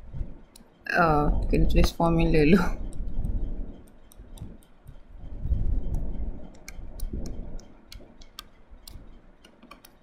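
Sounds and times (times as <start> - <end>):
low dull bumps: 2.8 - 9.3.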